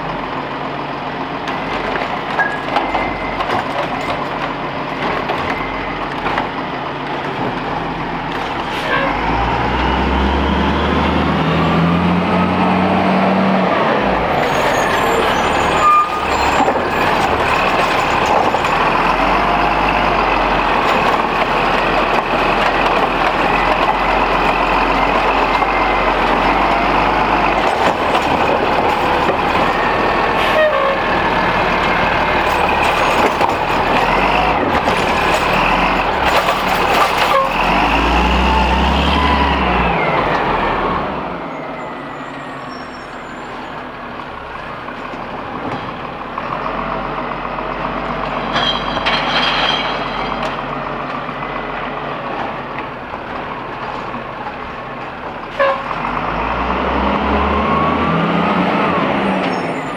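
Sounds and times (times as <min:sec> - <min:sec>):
garbage truck engine revving: 0:00.1 - 0:42.2, 0:55.8 - 0:59.9.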